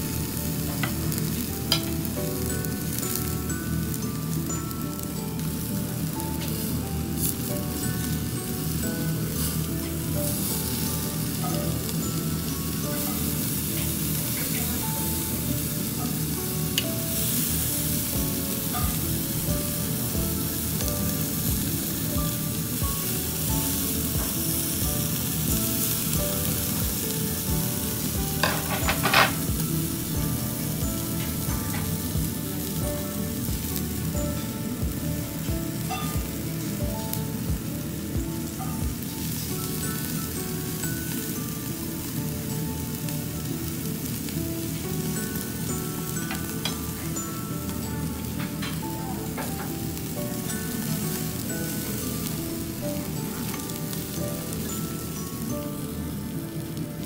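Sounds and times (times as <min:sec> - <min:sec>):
meat sizzling over charcoal: 0:00.0 - 0:57.0
metal tongs moving meat: 0:28.4 - 0:29.5.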